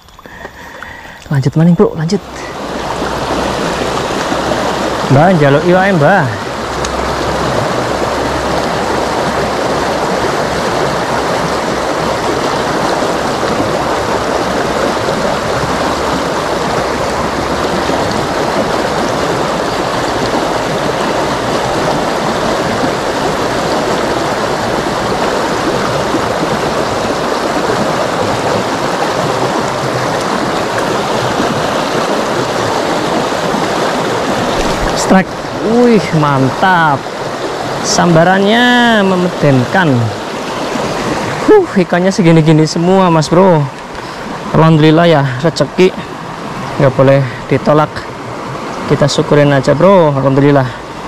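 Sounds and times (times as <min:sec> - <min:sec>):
river rushing over rapids: 0:01.6 - 0:51.0.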